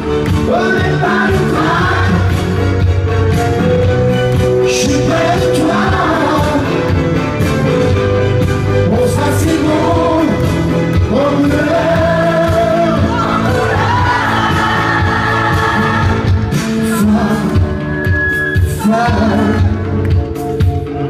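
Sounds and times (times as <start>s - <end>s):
loud amplified accompaniment: 0.0s - 21.0s
man singing into microphone: 0.4s - 2.4s, 4.6s - 7.0s, 8.8s - 18.0s, 18.7s - 20.0s.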